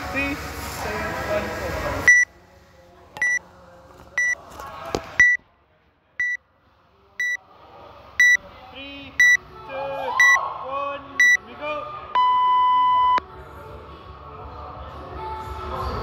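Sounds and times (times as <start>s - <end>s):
countdown timer beeping: 9.2s - 9.4s.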